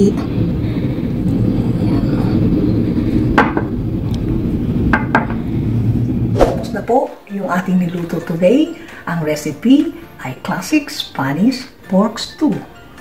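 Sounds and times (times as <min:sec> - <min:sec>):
steady low rumble: 0:00.0 - 0:07.1.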